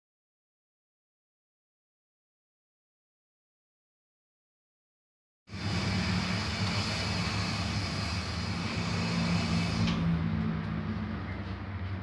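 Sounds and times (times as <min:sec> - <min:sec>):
vehicle engine running: 0:05.5 - 0:12.0.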